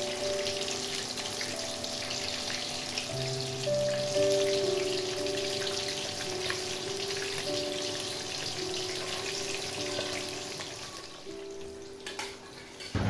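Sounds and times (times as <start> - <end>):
fish sizzling in hot oil: 0.0 - 13.0
slow background music: 0.0 - 13.0.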